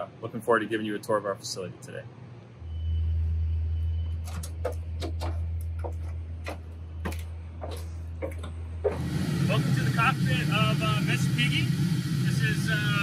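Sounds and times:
steady low hum: 0:00.0 - 0:13.0
footsteps on metal ladder: 0:04.2 - 0:09.0.

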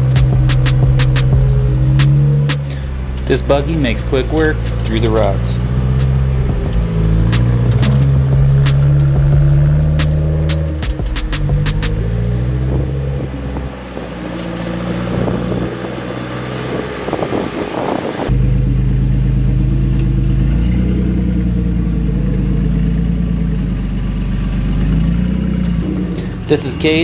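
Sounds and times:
deeper steady buggy engine: 0:00.0 - 0:27.0
buggy engines over rocks: 0:24.8 - 0:27.0.

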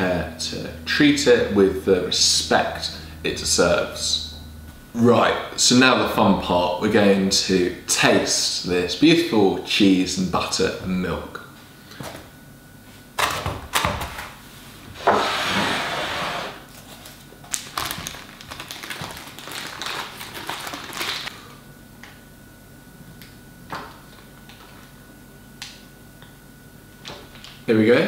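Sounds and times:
paper wrapping rustling: 0:16.6 - 0:21.3.

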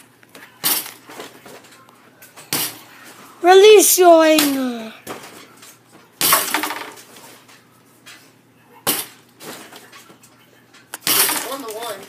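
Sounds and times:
basketball clanking on metal rim: 0:11.0 - 0:11.7.

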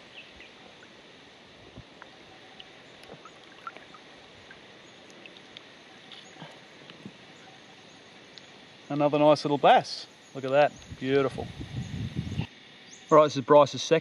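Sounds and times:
fish splashing at water surface: 0:02.5 - 0:05.6.

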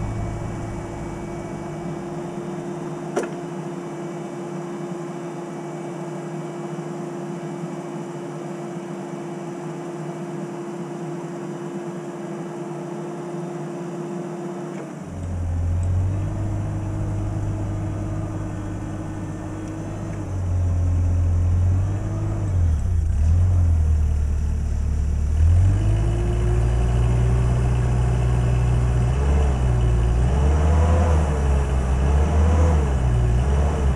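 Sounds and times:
deep rumble: 0:00.0 - 0:02.4, 0:15.5 - 0:32.3
forklift engine revving: 0:00.0 - 0:03.2, 0:15.0 - 0:33.9.

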